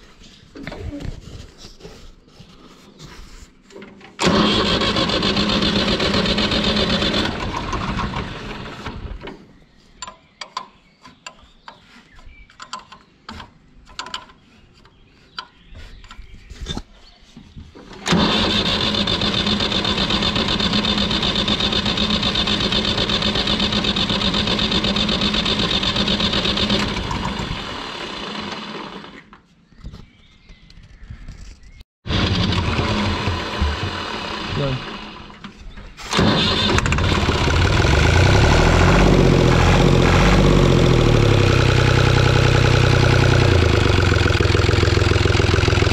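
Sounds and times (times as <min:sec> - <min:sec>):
diesel engine cranking on starter: 0:04.2 - 0:09.4, 0:17.9 - 0:29.3, 0:32.1 - 0:45.9.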